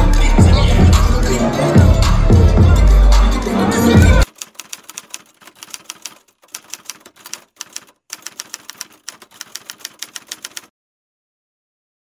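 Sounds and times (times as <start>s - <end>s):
typewriter key clicks: 4.2s - 10.7s.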